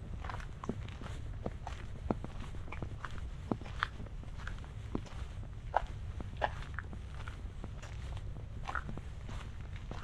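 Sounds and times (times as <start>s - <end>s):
footsteps on a trail: 0.0s - 10.0s.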